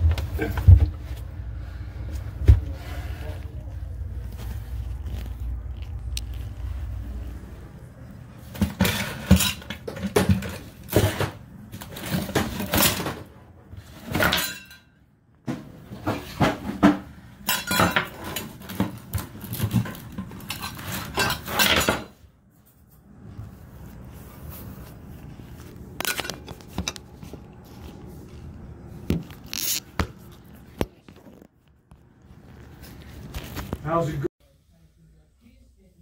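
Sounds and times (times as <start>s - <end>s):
low steady rumble: 0.0s - 8.5s
hard objects clinking and clattering: 16.0s - 22.2s, 25.6s - 28.0s.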